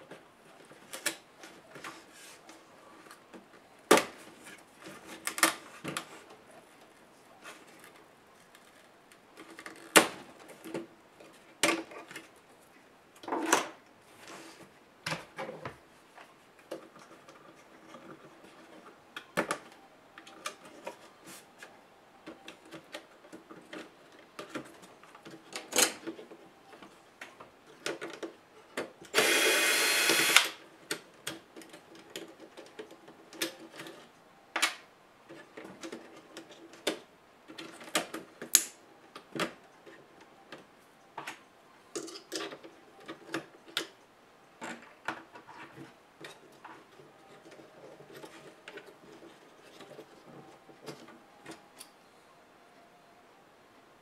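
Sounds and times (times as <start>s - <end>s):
electric screwdriver running: 29.2s - 30.6s.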